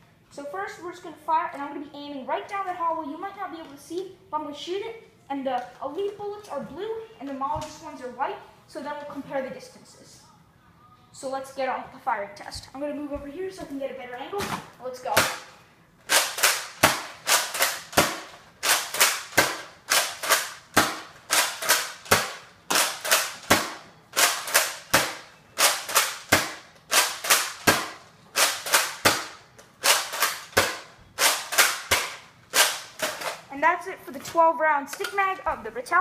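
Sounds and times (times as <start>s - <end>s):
dart blaster plastic clacks: 16.1s - 33.5s.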